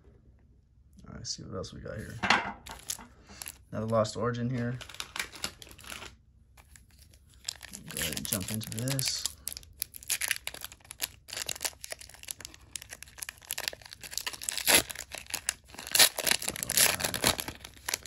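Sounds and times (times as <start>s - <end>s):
foil wrapper crinkling and tearing: 2.7s - 18.0s.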